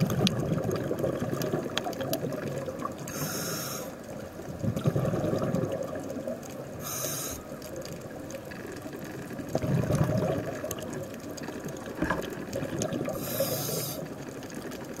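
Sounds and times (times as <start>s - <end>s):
exhaled bubbles burbling: 0.0s - 3.1s, 4.4s - 6.8s, 7.7s - 15.0s
steady watery rumble: 0.0s - 15.0s
hissing regulator inhalations: 3.1s - 4.0s, 6.8s - 7.6s, 13.1s - 14.2s.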